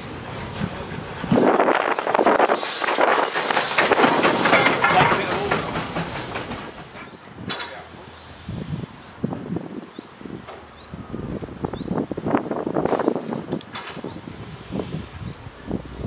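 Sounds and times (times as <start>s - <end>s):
steam hissing: 0.0s - 16.0s
locomotive wheels knocking: 0.3s - 8.1s.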